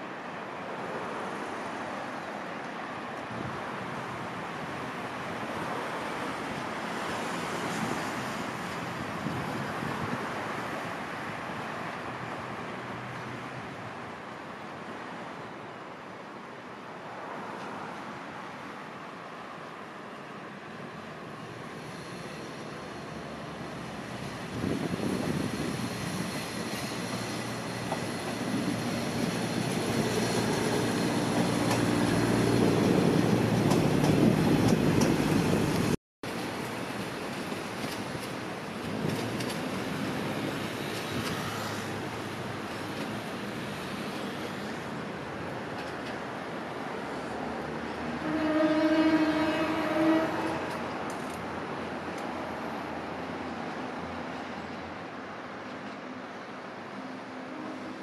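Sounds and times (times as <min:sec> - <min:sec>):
road traffic: 0:00.0 - 0:58.0
wind: 0:00.0 - 0:58.0
diesel locomotive hum: 0:20.9 - 0:52.8
train wheels clicking over rail joints: 0:26.2 - 0:41.9.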